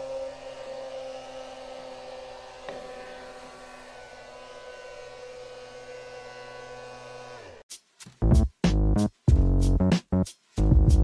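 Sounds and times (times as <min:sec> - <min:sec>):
vacuum cleaner motor whine: 0:00.0 - 0:07.6.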